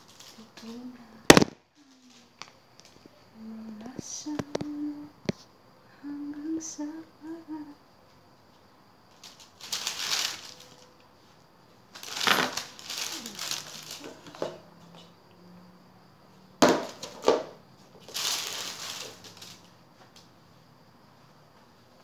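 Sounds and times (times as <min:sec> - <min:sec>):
baking paper rustling: 0:09.1 - 0:11.0, 0:11.9 - 0:14.4, 0:18.0 - 0:19.6.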